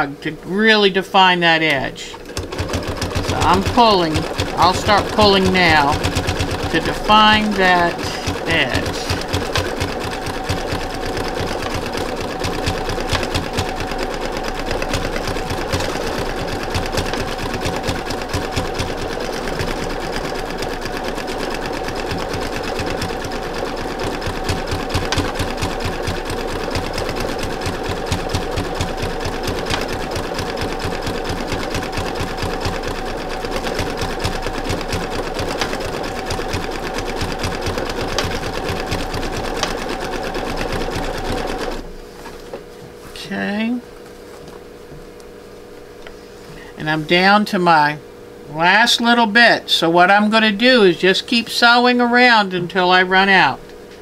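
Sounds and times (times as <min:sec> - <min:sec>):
sewing machine stitching: 0:02.1 - 0:41.9.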